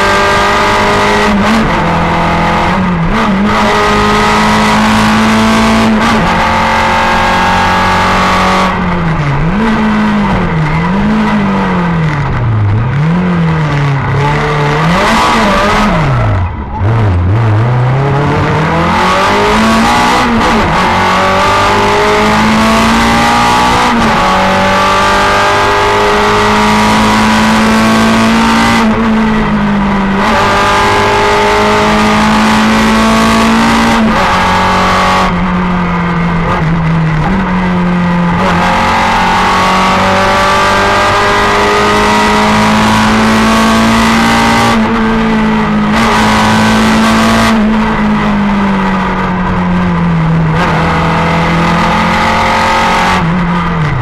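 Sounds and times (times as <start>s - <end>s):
rally car engine revving: 0.0s - 54.0s.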